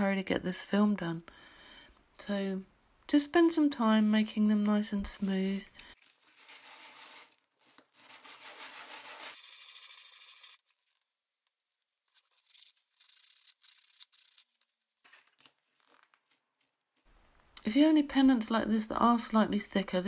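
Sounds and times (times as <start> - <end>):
sanding by hand: 8.0 - 10.6.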